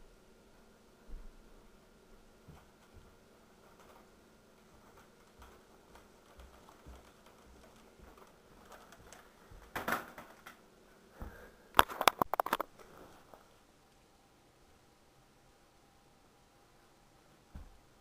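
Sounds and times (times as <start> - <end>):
footsteps on carpeted stairs: 1.0 - 9.8, 17.5 - 17.8
sharp clicks and knocks: 11.8 - 12.7.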